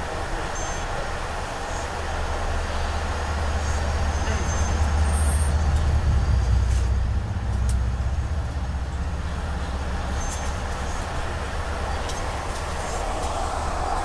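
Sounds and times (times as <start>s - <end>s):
passing freight train: 0.0s - 14.0s
train rumble inside coach: 0.0s - 14.0s.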